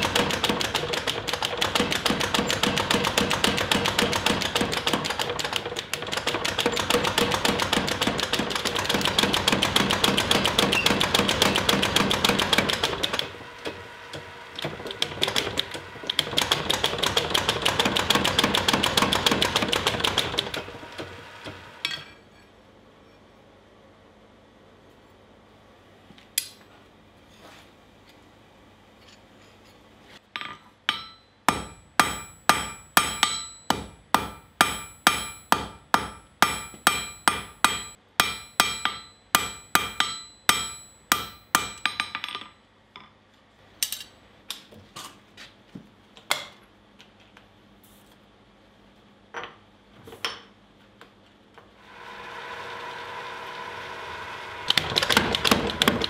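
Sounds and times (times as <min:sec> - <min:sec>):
power hammer rapid blows: 0:00.0 - 0:21.6
hammer striking steel on anvil: 0:30.4 - 0:42.5
power hammer motor: 0:51.8 - 0:56.0.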